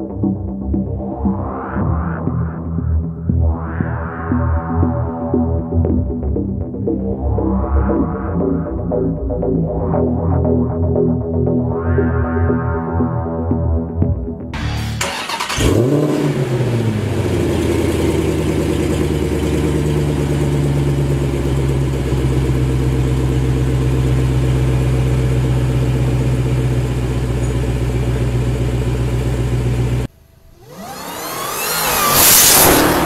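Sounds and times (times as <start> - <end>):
car engine starting and idling: 14.5 - 33.0.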